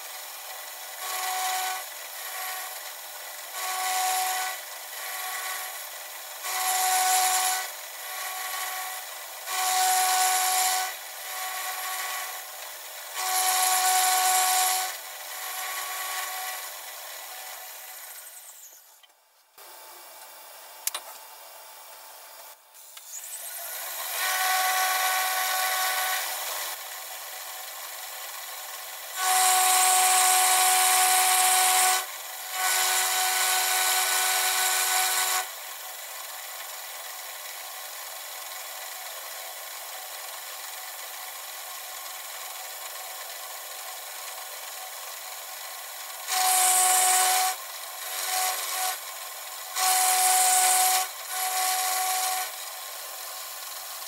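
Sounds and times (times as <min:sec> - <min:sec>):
milling machine cutting metal: 0:00.0 - 0:19.0, 0:22.8 - 0:36.1, 0:44.2 - 0:54.0
milling machine spindle running: 0:00.4 - 0:18.8, 0:23.0 - 0:36.0, 0:46.2 - 0:54.0.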